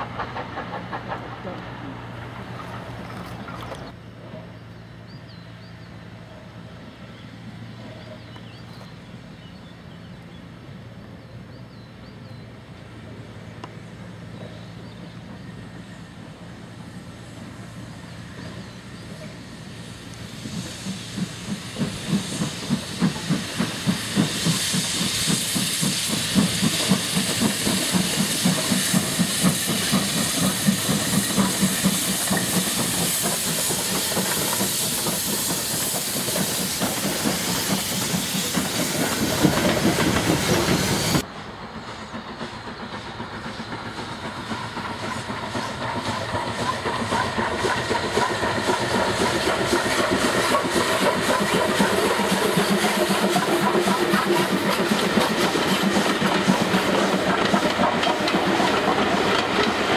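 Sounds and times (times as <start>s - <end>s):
steam locomotive exhaust beats: 0.0s - 59.9s
loud steam hiss: 12.2s - 59.9s.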